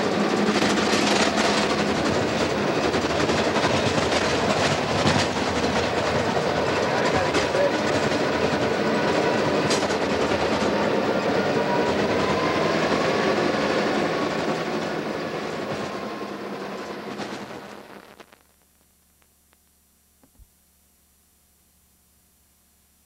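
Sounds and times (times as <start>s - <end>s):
bulldozer diesel engine and tracks: 0.0s - 18.1s.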